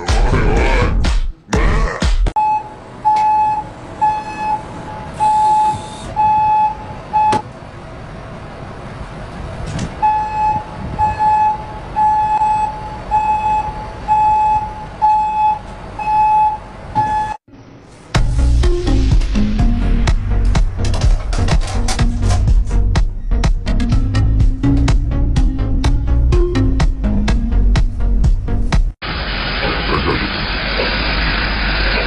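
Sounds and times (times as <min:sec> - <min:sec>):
repeated warning beeps: 0:02.4 - 0:07.5, 0:10.0 - 0:17.4
bus engine running: 0:02.7 - 0:17.0.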